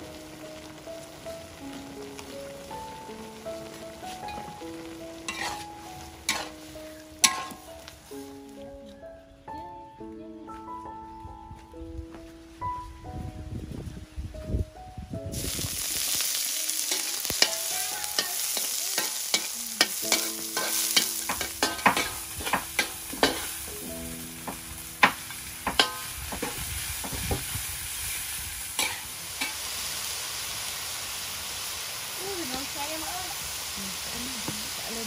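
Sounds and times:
meat sizzling in a wok: 0:00.0 - 0:08.3, 0:15.3 - 0:35.0
metal spatula scraping wok: 0:05.3 - 0:07.7, 0:16.8 - 0:23.7, 0:28.8 - 0:29.6.

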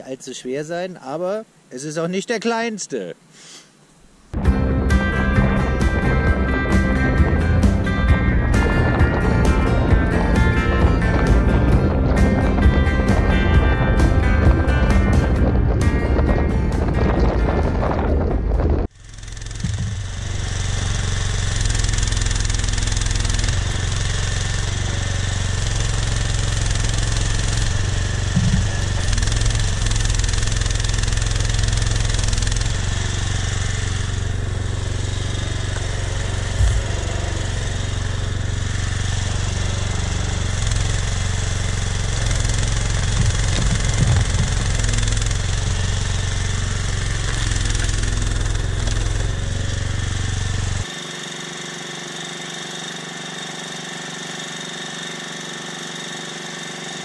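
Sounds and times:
mini excavator engine running: 0:04.4 - 0:57.0.

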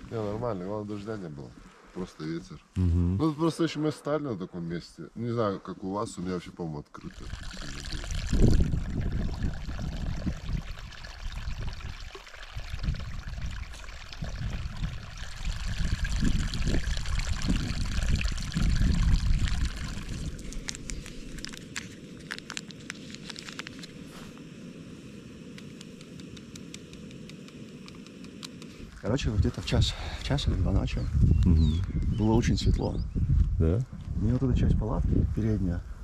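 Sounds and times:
wind buffeting microphone: 0:07.2 - 0:21.4, 0:28.9 - 0:36.0.

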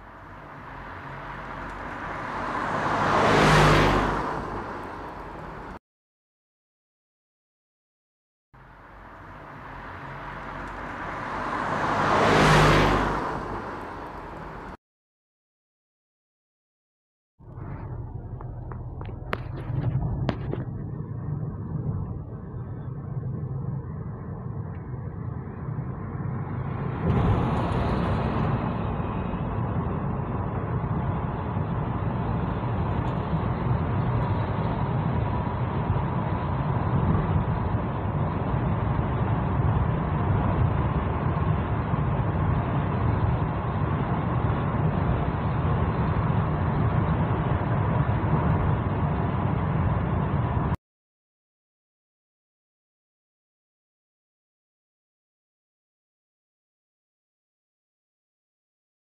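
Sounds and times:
car road noise rumble: 0:00.0 - 0:05.8, 0:08.6 - 0:14.8, 0:17.4 - 0:50.8.

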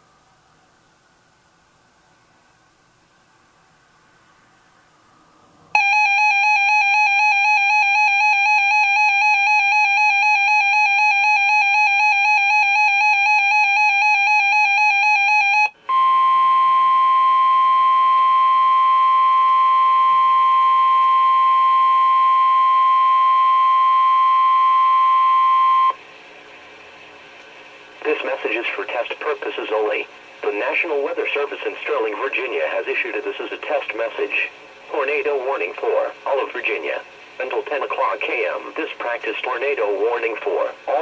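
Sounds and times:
fast-warbling electronic alarm tone: 0:05.8 - 0:24.4
steady warning alarm tone: 0:05.8 - 0:26.0.

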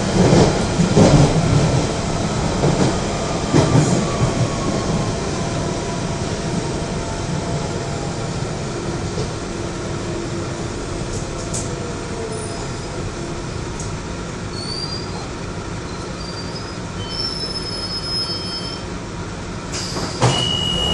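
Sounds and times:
train running rumble: 0:00.0 - 0:20.9
wheel and brake squeals: 0:14.5 - 0:18.9, 0:19.7 - 0:20.9.

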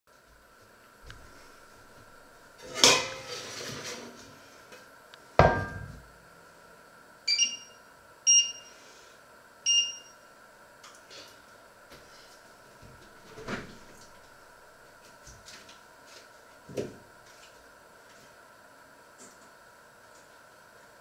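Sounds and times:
metal pot clank: 0:02.6 - 0:03.4
pot lid scraping and rattling: 0:02.6 - 0:04.0
short electronic beeps: 0:07.3 - 0:08.7, 0:09.7 - 0:10.2.

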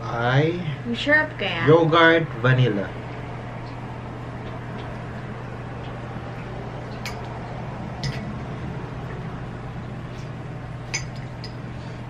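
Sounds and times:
steady low hum: 0:00.0 - 0:12.0
spoons clicking on tubs: 0:08.0 - 0:08.3.

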